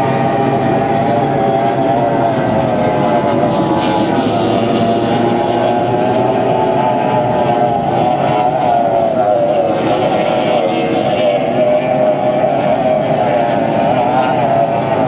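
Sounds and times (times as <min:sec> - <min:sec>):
race boat engines at high revs: 0:00.0 - 0:15.0.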